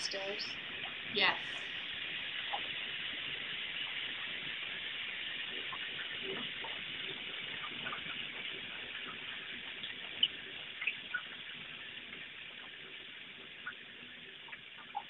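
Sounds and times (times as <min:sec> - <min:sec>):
recording hiss: 0:00.0 - 0:15.0.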